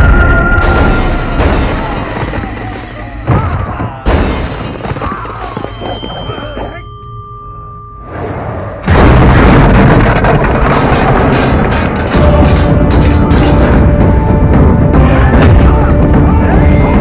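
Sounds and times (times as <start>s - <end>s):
loud crash: 0.0s - 5.7s, 8.1s - 14.0s
dramatic film score: 0.0s - 17.0s
glass shattering: 0.6s - 7.4s, 9.3s - 13.8s
held ringing tone: 5.4s - 8.2s
heavy hits: 8.8s - 15.7s.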